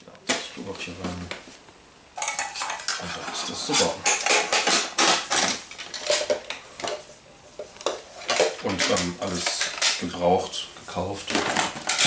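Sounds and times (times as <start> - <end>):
metal mess kit clinking: 2.2 - 7.0, 8.2 - 10.3, 11.2 - 12.0.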